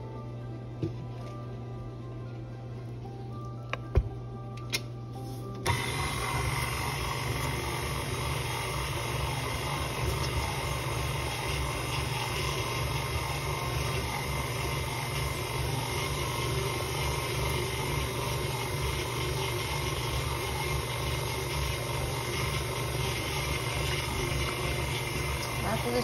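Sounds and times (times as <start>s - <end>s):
stand mixer motor running: 5.6s - 26.0s
beater churning thick dough: 5.7s - 26.0s.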